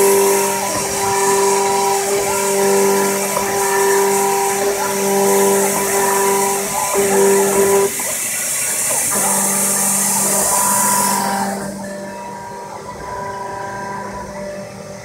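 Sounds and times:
engraving machine hiss: 0:00.0 - 0:15.0
whining machine tones: 0:00.0 - 0:15.0.

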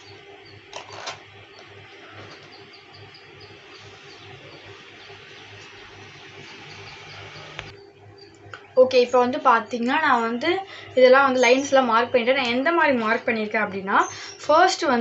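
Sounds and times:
background hiss with low hum: 0:00.0 - 0:15.0
faint high chirps: 0:01.5 - 0:08.4.

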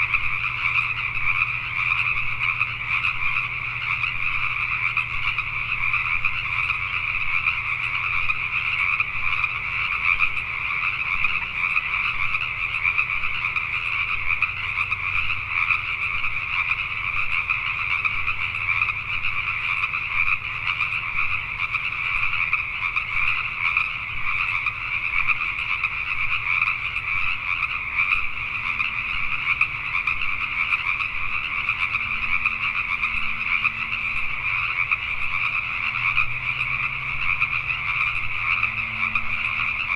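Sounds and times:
tree frogs chorus: 0:00.0 - 0:39.9.

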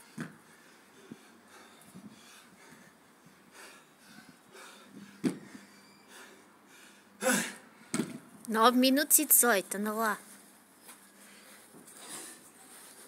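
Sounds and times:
man breathing heavily: 0:00.0 - 0:08.4
dumbbell thudding on paving: 0:05.2 - 0:05.5, 0:07.9 - 0:08.3.

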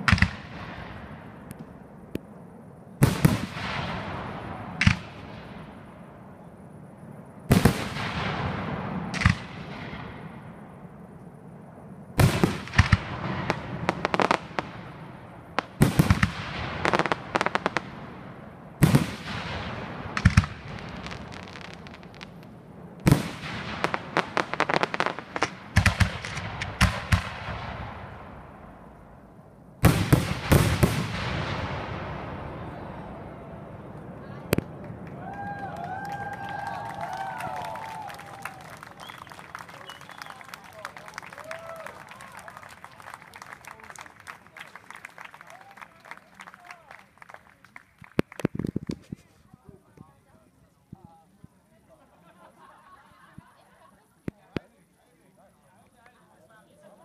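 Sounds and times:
firework shells bursting: 0:12.2 - 0:28.2.

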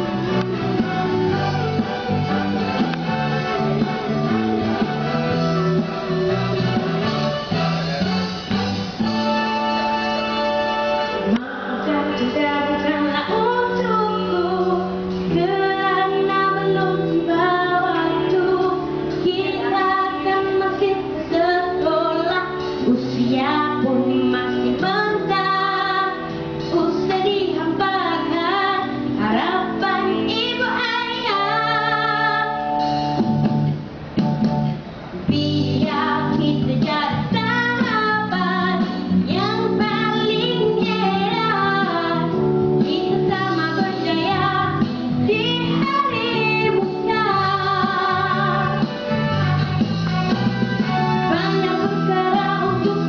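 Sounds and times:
instrumental music: 0:00.0 - 0:53.0
boy singing into microphone: 0:11.3 - 0:32.6, 0:35.3 - 0:49.0.

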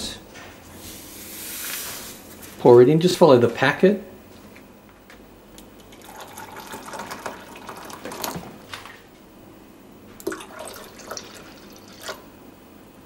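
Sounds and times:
water pouring into a jug: 0:05.9 - 0:08.5, 0:10.2 - 0:12.3.

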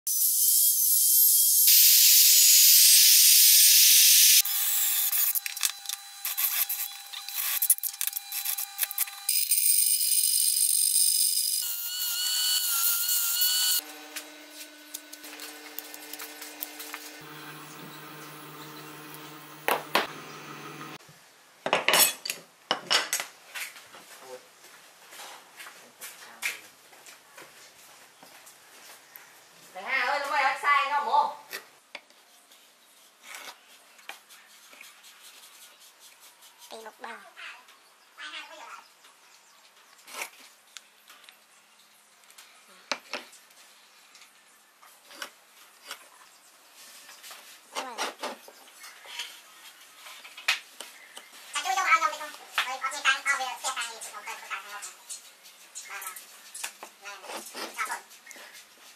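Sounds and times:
steady low hum: 0:13.8 - 0:21.0.

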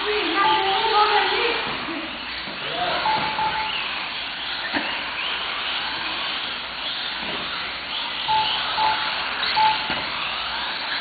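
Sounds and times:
electric rc car motors whining: 0:00.0 - 0:11.0
short beeps: 0:03.0 - 0:03.8, 0:08.3 - 0:10.0.

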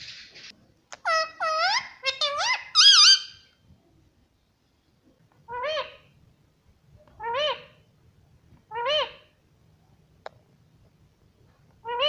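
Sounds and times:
parakeet whistled calls: 0:01.1 - 0:03.5.

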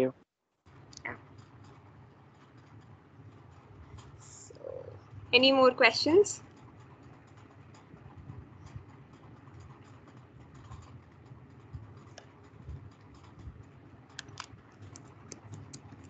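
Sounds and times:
low background noise: 0:00.0 - 0:16.0
typing on computer keyboard: 0:06.4 - 0:16.0.

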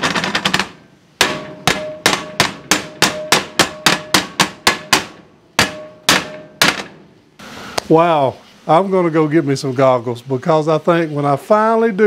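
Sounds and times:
skillet ringing: 0:01.2 - 0:06.8.

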